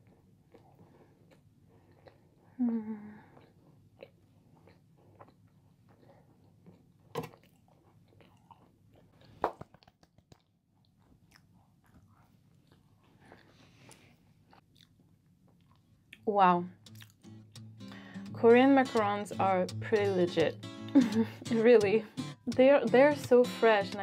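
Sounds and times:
soft chewing mouth noises: 0.0 - 2.6, 3.2 - 16.2, 16.8 - 17.2
sharp mouth clicks: 16.8 - 18.0.

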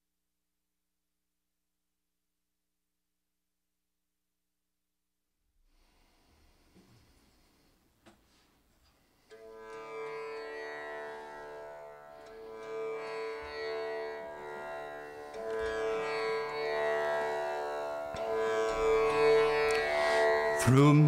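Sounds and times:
tanpura drone: 9.2 - 21.0.

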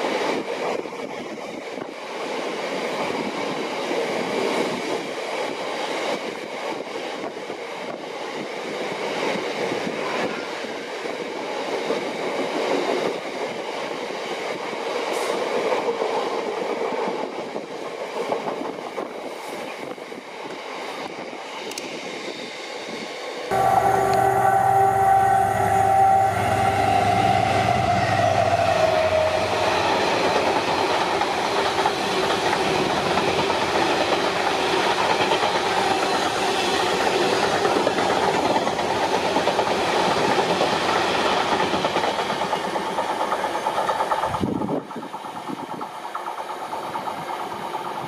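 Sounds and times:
train rumbling and clattering by: 0.0 - 48.0
train horn: 10.0 - 10.7, 23.5 - 30.6.

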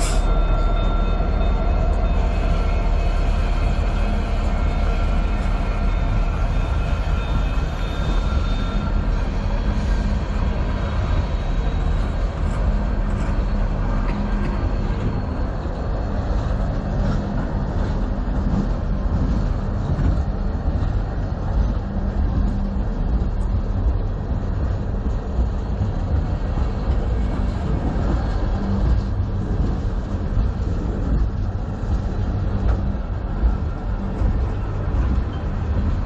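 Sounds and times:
steel wheels rumbling on rails: 0.0 - 36.0.

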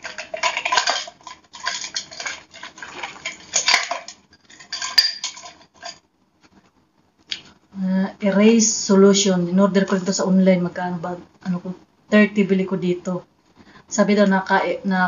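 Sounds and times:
bottles clinking in a box: 0.0 - 6.0.

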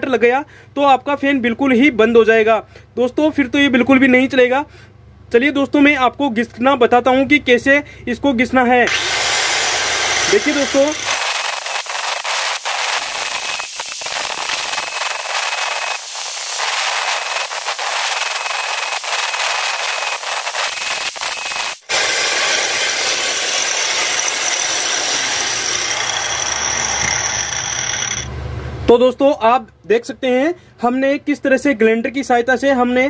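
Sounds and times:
angle grinder grinding steel: 8.9 - 28.3.

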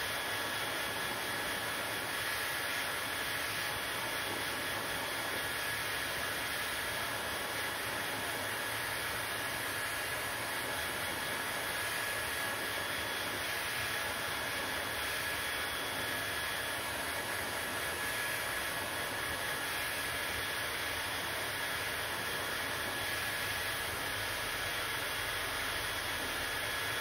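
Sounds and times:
hair dryer running: 0.0 - 27.0.

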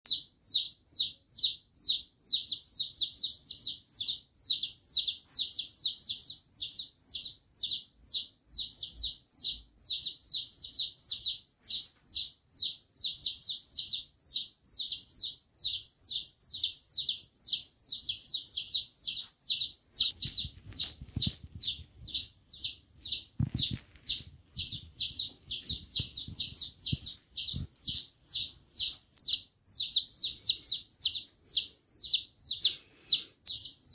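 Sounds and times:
baby chicks peeping: 0.0 - 33.9
soft low thumps: 23.2 - 28.8.

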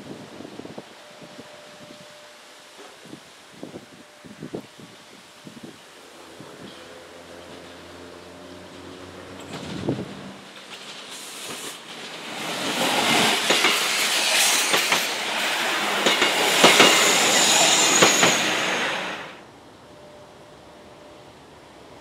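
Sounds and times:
railcar engine hum: 0.0 - 22.0
wheels clacking over rail joints: 6.6 - 19.3
high wheel squeal: 13.1 - 19.4.

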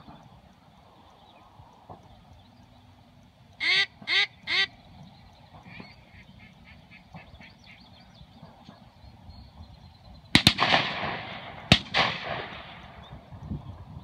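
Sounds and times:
duck quacking: 3.6 - 4.7
gunshots with rolling echo: 10.3 - 13.3.

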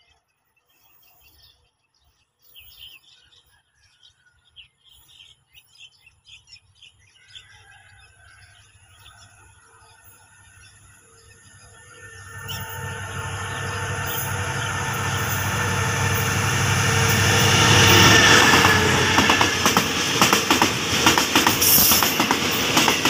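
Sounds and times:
birds chirping: 0.0 - 23.0
freight train approaching: 9.3 - 23.0.

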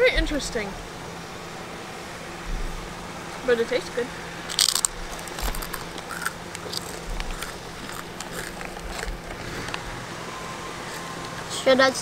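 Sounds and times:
people chewing crunchy crisps: 4.5 - 10.1.

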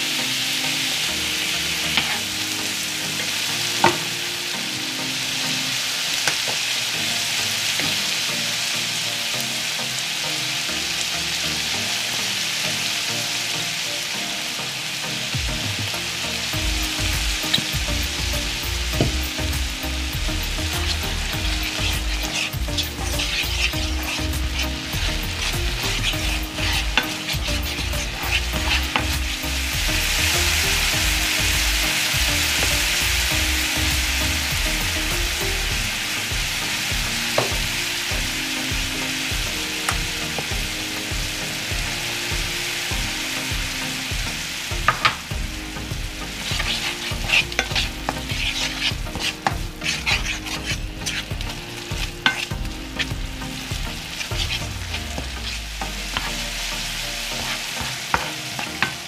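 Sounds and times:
food sizzling in a frying pan: 0.0 - 59.0
wooden spatula scraping a pan: 1.9 - 2.4, 20.2 - 59.0.

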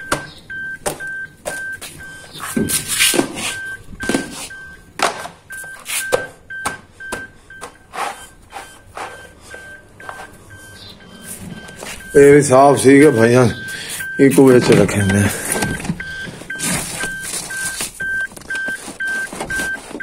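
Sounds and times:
car warning chime beeping: 0.0 - 2.9, 3.5 - 20.0
scrubbing and rustling: 15.7 - 20.0.

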